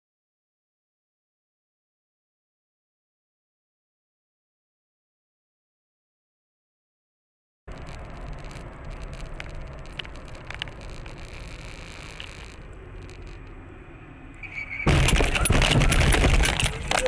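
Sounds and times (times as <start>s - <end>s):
car engine and road noise: 7.7s - 17.0s
car crash impact: 14.7s - 17.0s.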